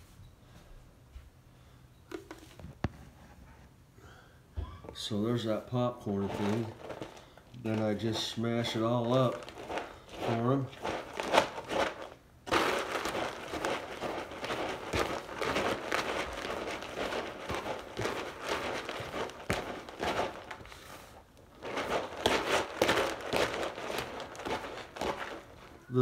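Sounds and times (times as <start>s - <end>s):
utensil mashing food in plastic bucket: 6.0s - 26.0s.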